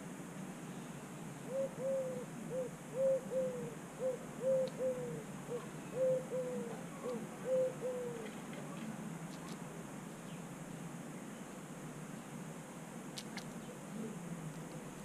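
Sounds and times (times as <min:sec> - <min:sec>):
dove cooing: 0:01.4 - 0:08.4.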